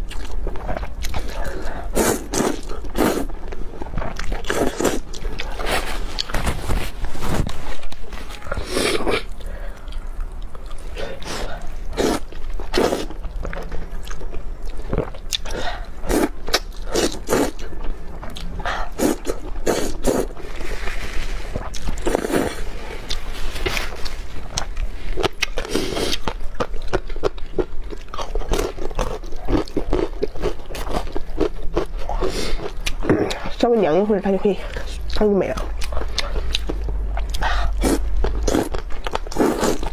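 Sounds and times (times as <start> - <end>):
slurping noodles: 1.8 - 3.3, 18.9 - 21.0, 21.6 - 24.1, 37.4 - 39.9.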